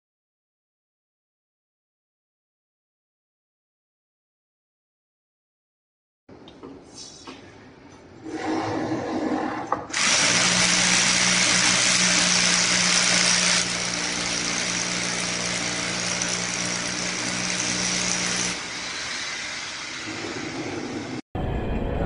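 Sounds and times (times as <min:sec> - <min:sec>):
electric drill boring into concrete: 0:09.9 - 0:21.2.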